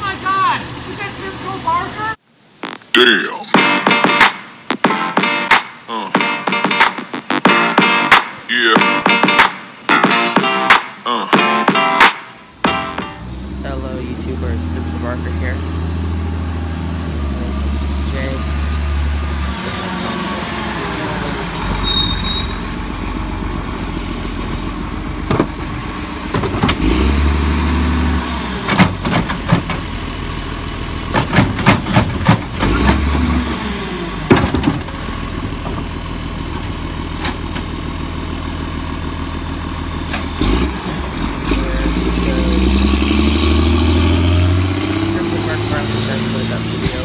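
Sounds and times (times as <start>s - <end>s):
garbage truck engine idling: 23.6s - 26.7s, 28.4s - 32.8s, 33.9s - 41.4s
cart banging against hopper: 28.7s - 29.9s, 31.1s - 33.1s.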